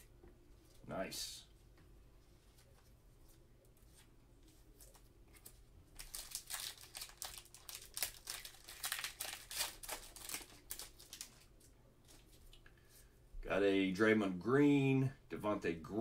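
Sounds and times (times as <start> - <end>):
plastic wrapper crinkling and tearing: 4.8 - 12.2.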